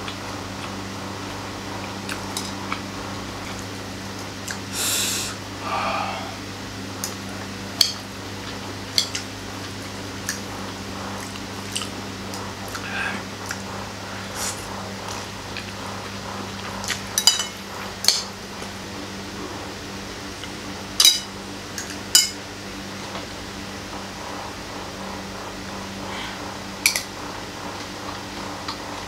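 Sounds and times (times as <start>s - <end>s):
low steady hum: 0.0s - 8.2s.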